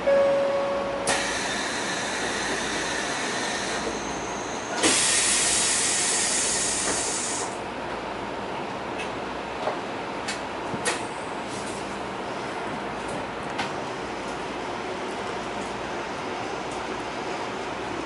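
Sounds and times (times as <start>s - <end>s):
short steady tone: 0.0s - 1.2s
train wheel and rail noise: 0.0s - 18.0s
loud hiss: 4.8s - 7.5s.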